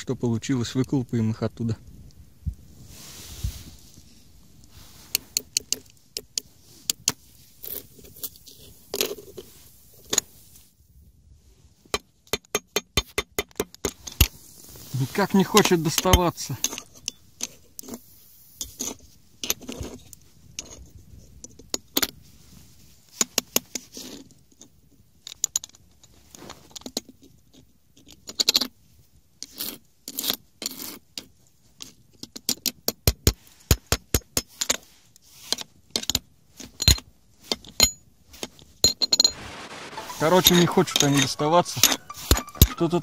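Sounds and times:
metallic clicks taps and scrapes: 0:05.1 - 0:08.4.

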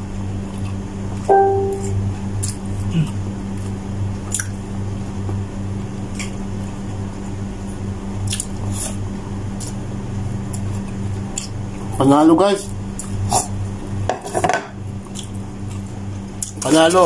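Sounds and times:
steady low hum: 0:00.0 - 0:17.0
chewing: 0:00.5 - 0:00.8, 0:02.4 - 0:04.6, 0:08.3 - 0:09.8, 0:10.4 - 0:11.9, 0:15.0 - 0:16.8.

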